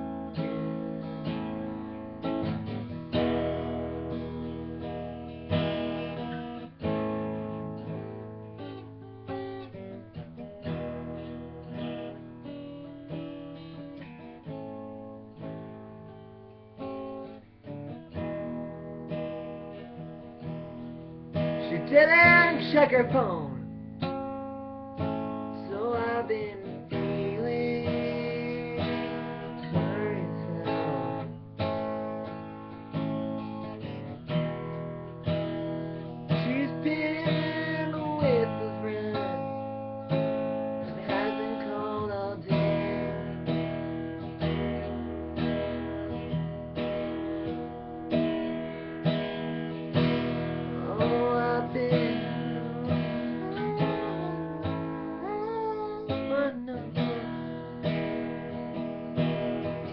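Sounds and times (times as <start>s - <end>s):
acoustic guitar strumming: 0.0s - 59.9s
young man singing: 21.5s - 23.7s, 25.5s - 31.3s, 36.3s - 39.7s, 40.8s - 43.4s, 50.0s - 58.5s.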